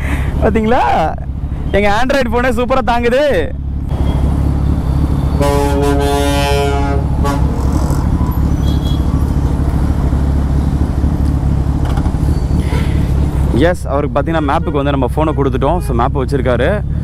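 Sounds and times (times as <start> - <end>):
road traffic rumble: 0.0 - 17.0
vehicle horn blast: 5.3 - 7.8.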